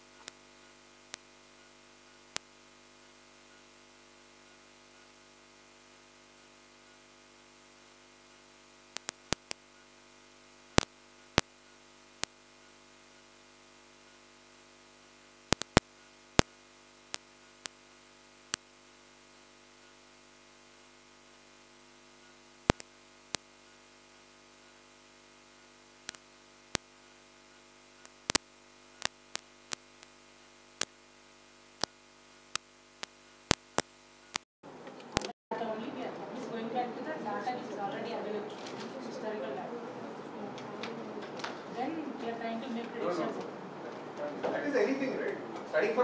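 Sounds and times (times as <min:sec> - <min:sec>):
sharp short clicks: 0:08.9 - 0:09.7, 0:15.5 - 0:18.8, 0:22.6 - 0:23.5, 0:25.9 - 0:27.2.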